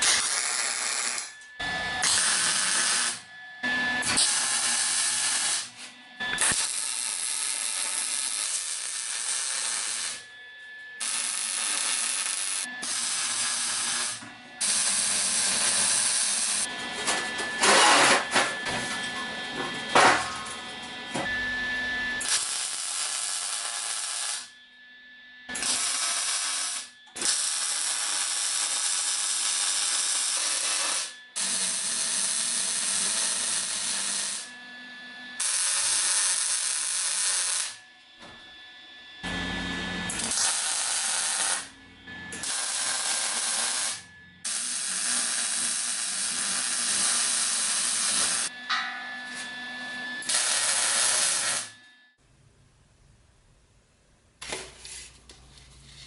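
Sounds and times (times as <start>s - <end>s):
welding arc crackling and hissing: 0.0s - 1.4s, 2.0s - 3.3s, 4.0s - 10.3s, 11.0s - 16.7s, 22.2s - 24.6s, 25.6s - 34.5s, 35.4s - 37.8s, 40.1s - 41.8s, 42.4s - 48.5s, 50.2s - 51.7s.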